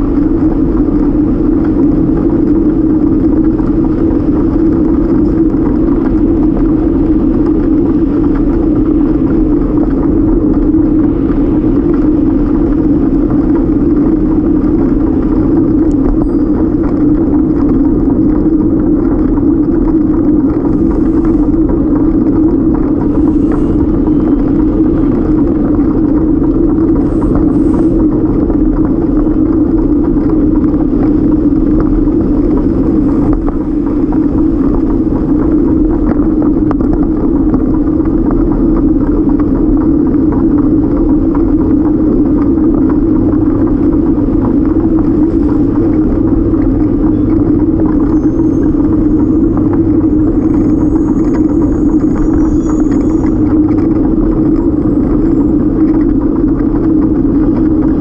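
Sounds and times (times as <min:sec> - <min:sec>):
bike rolling on pavement: 0:00.0 - 0:58.0
car traffic: 0:00.0 - 0:58.0.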